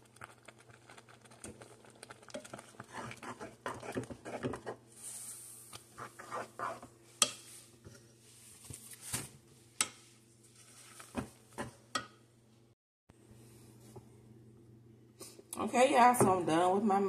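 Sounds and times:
spoon scraping mashed potatoes: 0.3s - 8.2s.

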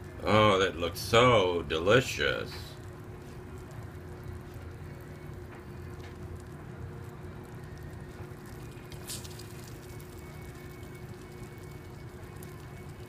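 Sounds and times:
steady low hum: 0.0s - 13.0s
spoon stirring cake mix: 7.6s - 13.0s.

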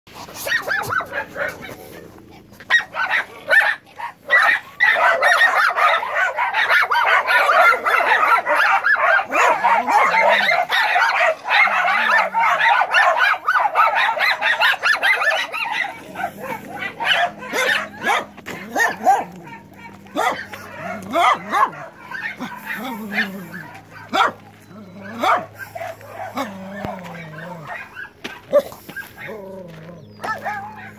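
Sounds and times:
dogs barking: 0.2s - 30.9s.

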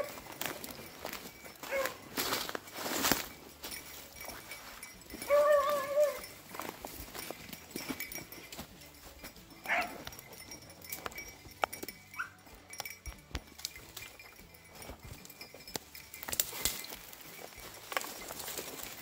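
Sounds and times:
dogs baying: 0.0s - 2.6s, 3.2s - 8.4s, 9.5s - 12.8s
rustling of dry brush underfoot: 0.0s - 9.1s, 14.3s - 19.0s.

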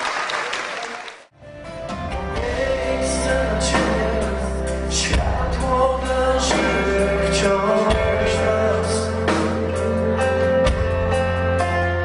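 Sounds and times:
bass guitar: 1.4s - 12.0s
drums: 1.5s - 12.0s
electric guitars: 1.5s - 12.0s
man singing: 2.2s - 10.9s.

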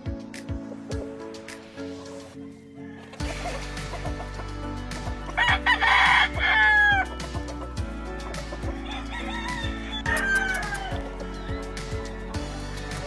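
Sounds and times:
background music with bass beat: 0.0s - 2.4s, 3.2s - 13.0s
rooster crowing: 5.4s - 7.2s, 8.7s - 11.2s.

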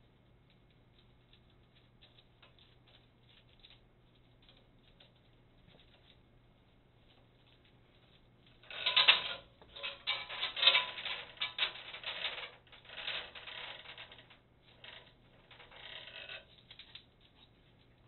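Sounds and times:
metal chain clattering: 8.6s - 15.0s.

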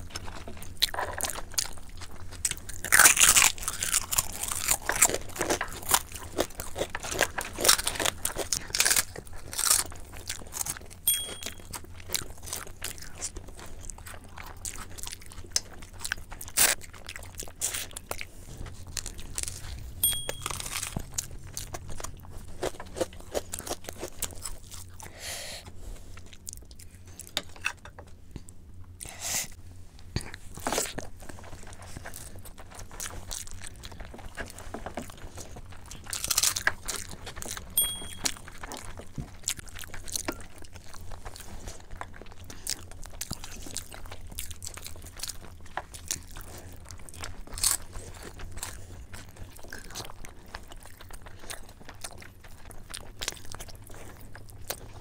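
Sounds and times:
raw onion crunching: 0.0s - 25.2s, 30.1s - 55.0s
low steady hum: 0.0s - 55.0s
people chewing and smacking: 0.0s - 55.0s.

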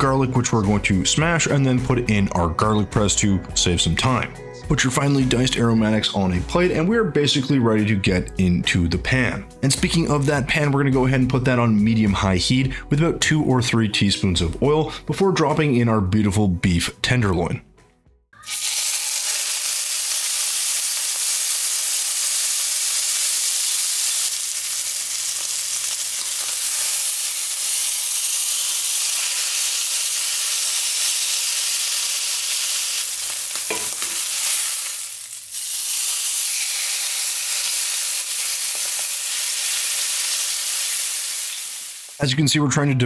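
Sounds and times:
meat sizzling in a skillet: 18.4s - 42.2s.

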